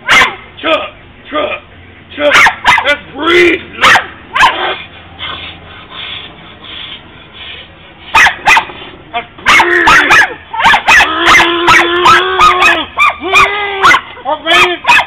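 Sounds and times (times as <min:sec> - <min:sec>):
small dog barking: 0:00.0 - 0:00.4, 0:02.3 - 0:02.9, 0:03.8 - 0:04.8, 0:08.1 - 0:08.7, 0:09.4 - 0:14.1.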